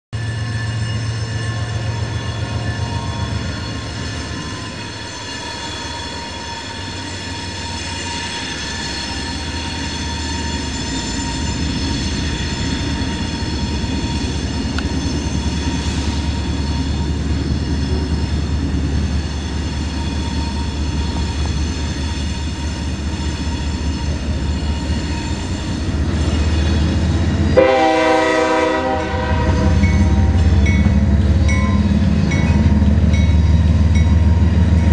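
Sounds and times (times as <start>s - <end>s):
rolling train cars: 0.1s - 34.9s
locomotive horn: 27.5s - 30.7s.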